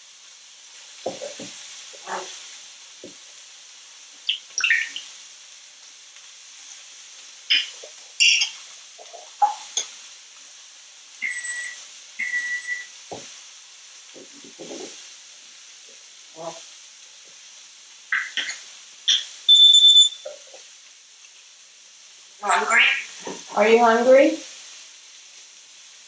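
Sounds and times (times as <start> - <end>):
background hiss: 0.0 - 26.0
parrot whistling and chirping: 4.3 - 5.1, 7.5 - 8.6, 11.2 - 13.0, 18.1 - 20.5.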